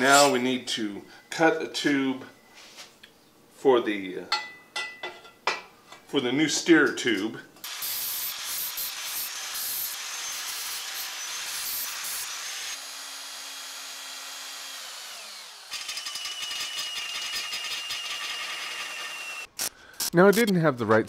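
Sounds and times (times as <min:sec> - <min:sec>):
angle grinder cutting steel: 0:07.6 - 0:19.7
cordless drill boring through steel: 0:07.7 - 0:19.5.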